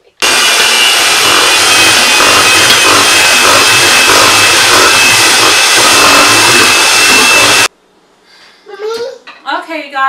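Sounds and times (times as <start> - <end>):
electric mixer whirring: 0.2 - 7.7.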